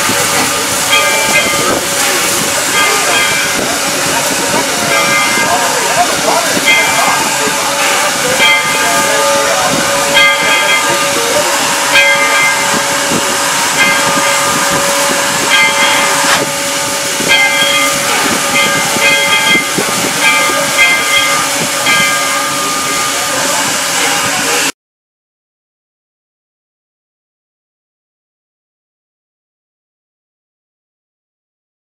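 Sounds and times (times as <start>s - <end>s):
steam locomotive hissing: 0.0s - 24.7s.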